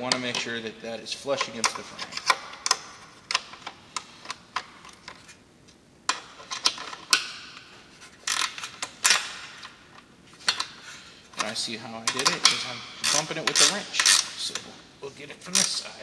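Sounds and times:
wrench clicking on metal bolt: 8.3s - 9.7s, 12.1s - 14.4s.

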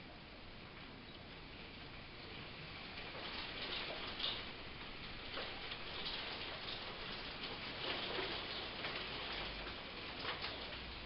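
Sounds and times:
rain hiss: 0.0s - 11.0s
raindrops ticking on surface: 0.1s - 11.0s.

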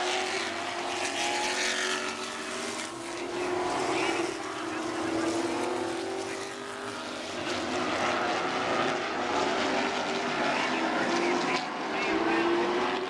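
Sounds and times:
stock car engines droning: 0.0s - 13.0s.

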